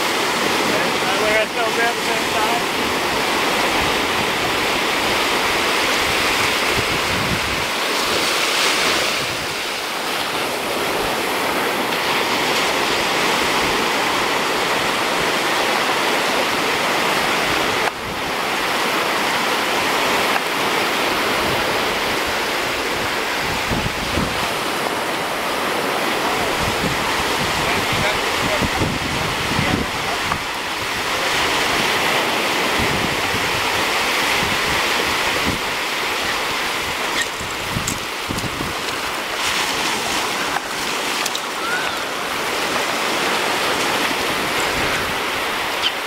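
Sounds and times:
wind buffeting microphone: 0.0s - 9.9s, 21.0s - 46.0s
ocean surf breaking on shore: 0.0s - 46.0s.

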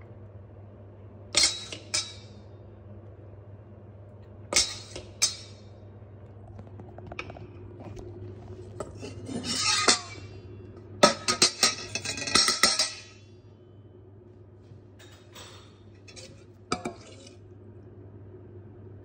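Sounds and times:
metal utensils clinking on a bowl: 1.4s - 2.4s, 8.8s - 10.4s, 11.0s - 13.2s.

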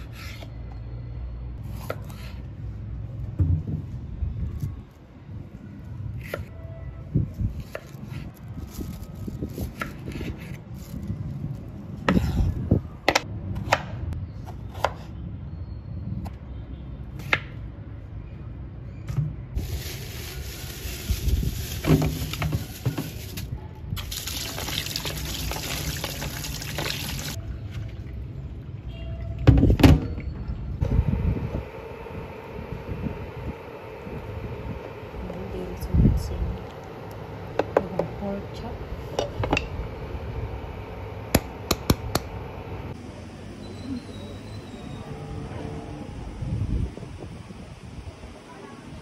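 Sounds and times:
water running: 24.1s - 27.4s.

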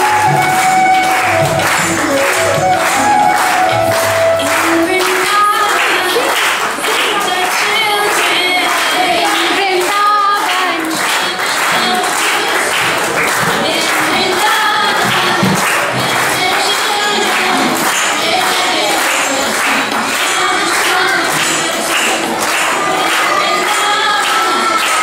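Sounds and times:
steady drum beat: 0.0s - 5.6s
group of voices singing: 0.0s - 25.0s.

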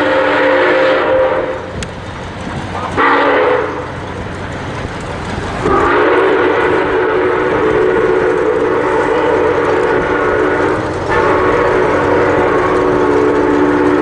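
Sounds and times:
steam locomotive whistle blasts: 0.0s - 1.8s, 3.0s - 3.9s, 5.6s - 14.0s
low rumble of moving train: 0.0s - 14.0s.

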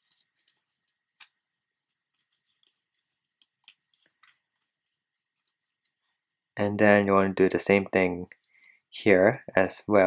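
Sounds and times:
paper crinkling: 0.0s - 6.6s.

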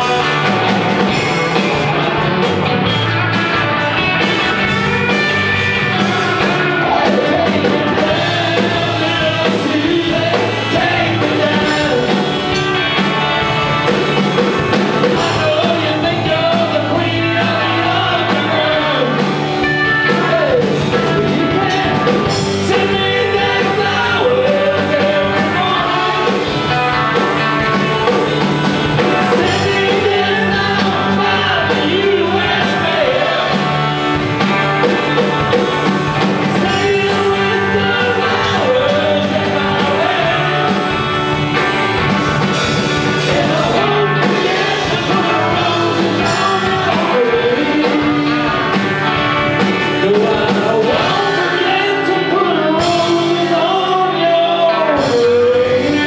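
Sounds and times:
person singing: 0.0s - 3.1s, 3.9s - 41.3s, 42.4s - 56.0s
electric guitar: 0.0s - 56.0s
held bass notes: 0.0s - 56.0s.

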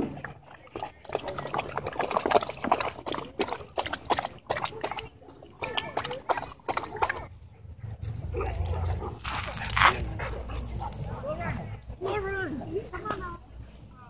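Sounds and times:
dog lapping water: 0.0s - 7.3s.

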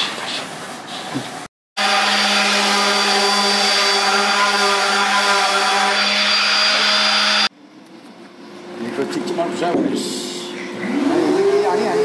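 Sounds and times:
orbital sander running: 1.8s - 7.5s.

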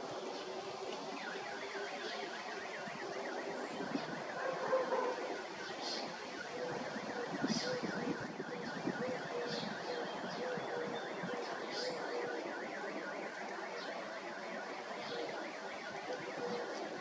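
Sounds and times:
electronic alarm siren warbling: 1.1s - 17.0s.

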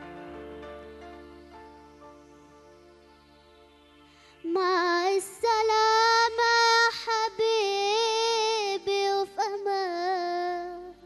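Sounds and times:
electronic keyboard chords: 0.0s - 6.8s
boy singing into a microphone: 4.4s - 11.0s.

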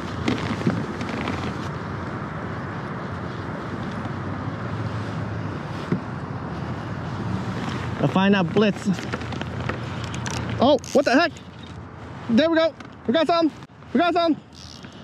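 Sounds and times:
wind noise on microphone: 0.0s - 8.0s.

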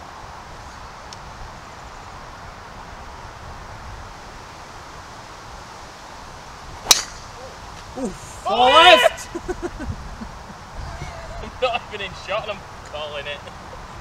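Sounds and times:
steady wind: 0.0s - 14.0s
tree leaves rustling: 0.0s - 14.0s.

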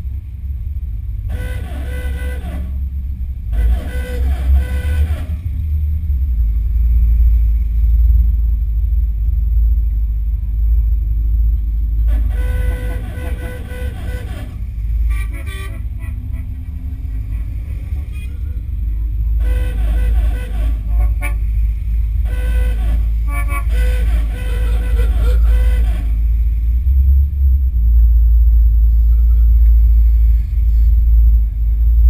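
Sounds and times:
moving car rumble: 0.0s - 32.0s
car horns tooting: 1.3s - 2.8s, 3.5s - 5.5s, 12.1s - 26.4s.

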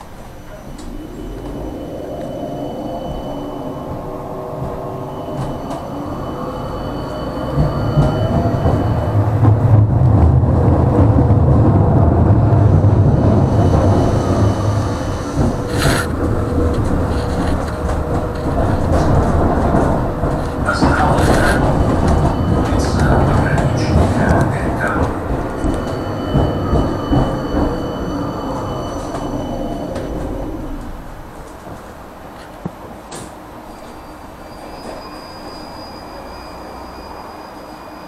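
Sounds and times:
tram drive whining: 0.0s - 38.0s
wheels rumbling on rails: 0.0s - 38.0s.

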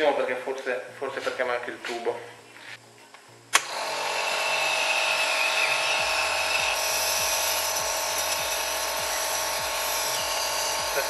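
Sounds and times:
compressor switch click: 3.5s - 3.7s
compressor running steadily: 3.5s - 11.0s.

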